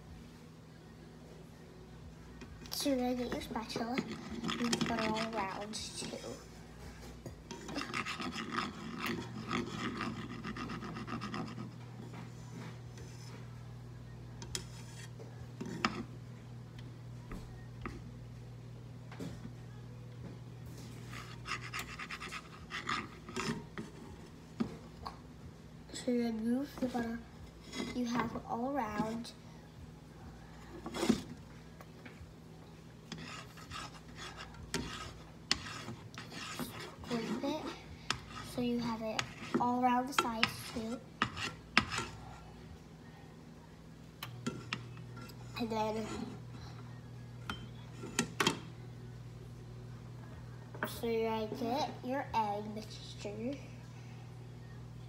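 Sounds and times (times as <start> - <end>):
steady low hum: 0.0 - 55.0
spatula scraping frying pan: 2.8 - 13.7, 14.4 - 16.2, 20.8 - 24.7, 26.7 - 29.3, 30.5 - 31.4, 33.0 - 42.5, 44.3 - 48.7.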